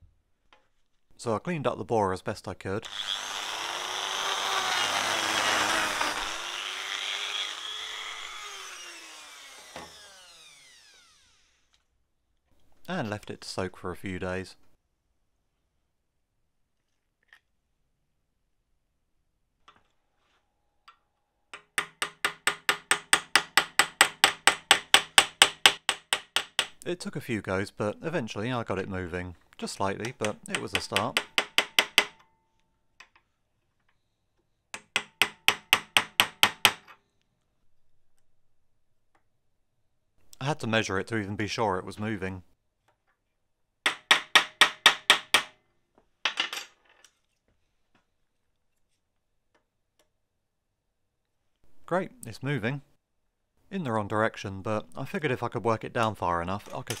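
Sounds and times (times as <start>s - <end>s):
hammer striking metal: 43.9s - 45.5s.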